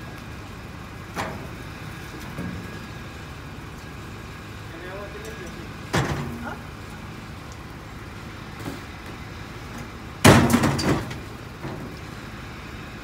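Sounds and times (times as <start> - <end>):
equipment clattering bang: 5.9 - 6.4, 10.2 - 11.9.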